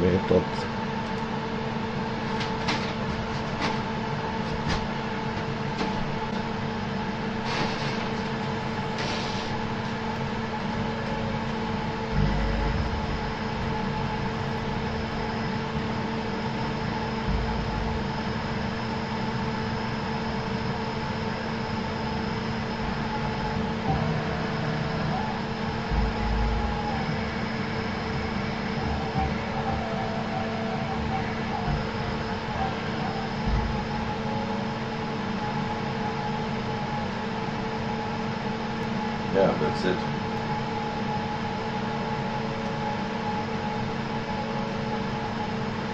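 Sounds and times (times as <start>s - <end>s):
milling machine hum: 0.0s - 45.9s
whining axis drives: 8.0s - 41.8s
soft low thumps: 11.9s - 19.8s, 22.6s - 34.6s.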